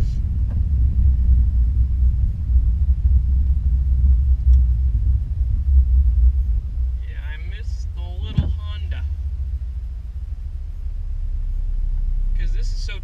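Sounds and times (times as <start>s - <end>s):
pickup engine low rumble: 0.0s - 13.0s.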